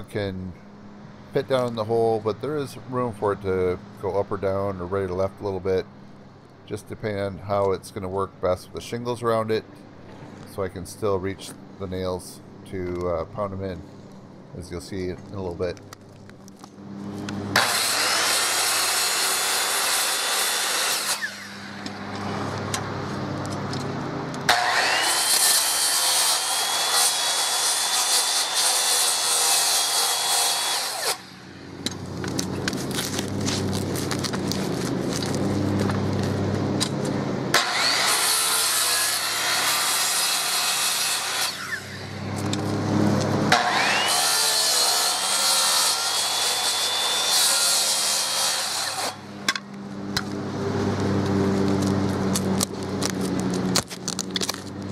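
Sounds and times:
circular saw cutting wood: 17.3 - 22.8, 24.5 - 35.7, 37.5 - 49.6.

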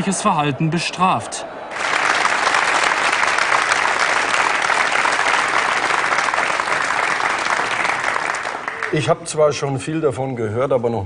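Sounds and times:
studio audience applauding: 1.7 - 9.2.

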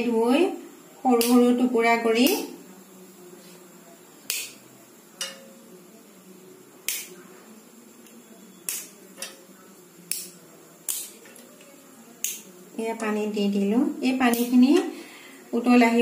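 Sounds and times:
cinnamon stick snapping: 4.2 - 4.6, 6.8 - 7.2, 8.0 - 9.4, 10.1 - 12.5, 14.3 - 14.6.

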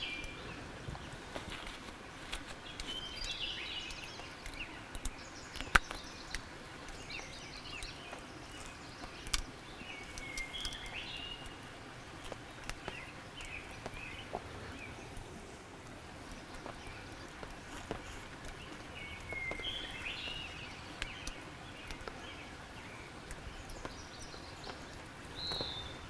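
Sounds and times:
small birds chirping: 0.0 - 26.0
hands stripping feathers clicks: 2.3 - 7.0, 9.0 - 11.0.

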